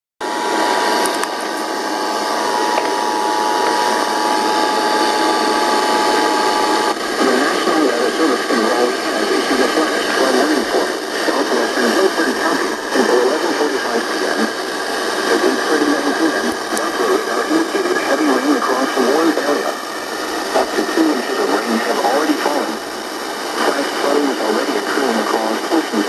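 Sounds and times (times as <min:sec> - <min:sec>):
radio hiss: 0:00.2 - 0:26.0
person speaking over radio: 0:07.2 - 0:22.8, 0:23.5 - 0:26.0.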